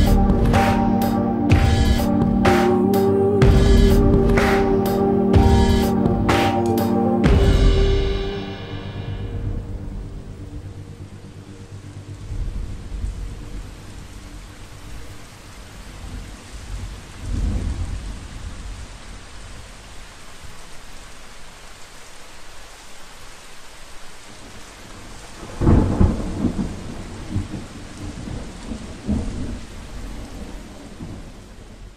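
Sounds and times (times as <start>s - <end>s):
thunder rumbling: 0.0s - 15.1s, 16.0s - 18.9s, 25.4s - 31.9s
steady rain hissing: 0.0s - 31.9s.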